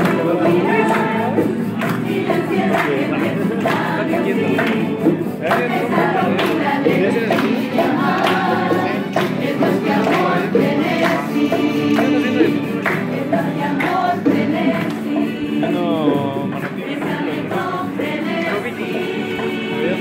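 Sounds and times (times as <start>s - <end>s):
women singing in chorus: 0.0s - 15.8s, 16.7s - 20.0s
strummed guitars: 0.0s - 20.0s.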